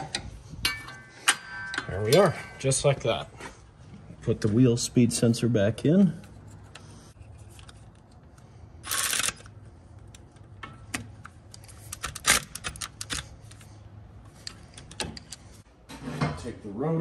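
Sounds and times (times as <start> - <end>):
clicks and knocks of metal parts: 6.2 - 15.6.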